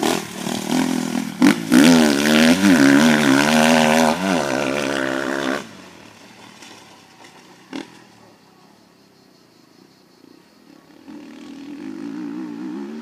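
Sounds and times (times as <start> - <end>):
dirt bike engine revving: 0.0 - 8.2, 10.9 - 13.0
distant engine: 0.0 - 9.1, 10.1 - 13.0.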